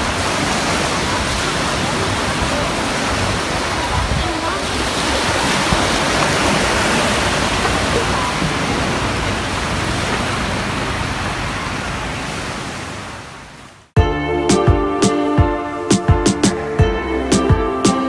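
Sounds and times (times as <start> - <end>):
small waves breaking on shore: 0.0 - 14.0.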